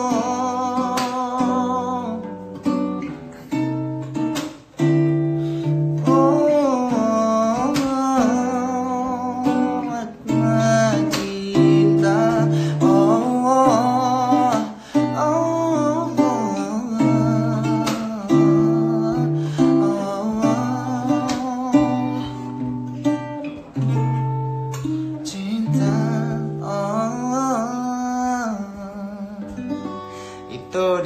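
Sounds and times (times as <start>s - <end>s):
person singing: 0.0s - 4.0s, 5.1s - 31.0s
acoustic guitar ballad: 0.0s - 31.0s.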